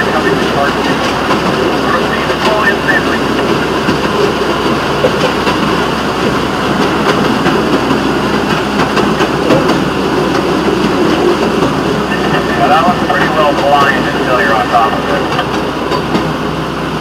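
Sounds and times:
rail vehicle rumbling on track: 0.0 - 17.0
wheels clicking over rail joints: 0.0 - 17.0.

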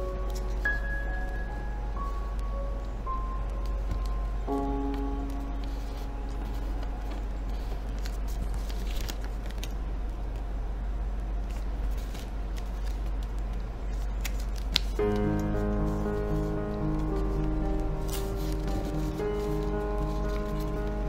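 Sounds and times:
background music: 0.0 - 7.8, 15.0 - 21.0
steady low hum: 0.0 - 21.0
paper rustling and crinkling: 0.1 - 1.4, 3.5 - 10.5, 11.4 - 21.0.

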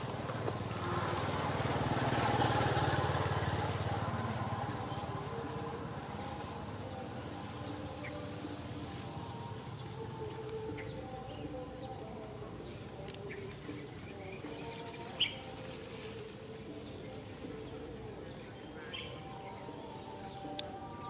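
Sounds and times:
soft background music: 0.0 - 21.0
bird-like chirps: 4.8 - 6.4.

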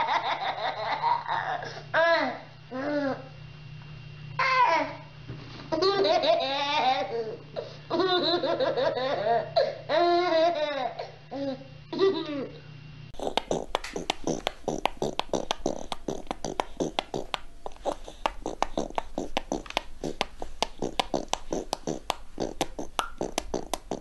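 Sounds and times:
toddler laughing: 0.0 - 3.2, 5.7 - 12.6
fast irregular clicks and taps: 13.3 - 24.0.

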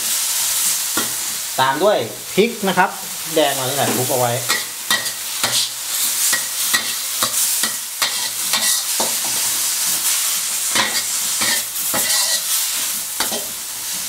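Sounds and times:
greens sizzling in a wok: 0.0 - 14.0
metal spatula scraping wok: 3.5 - 14.0.

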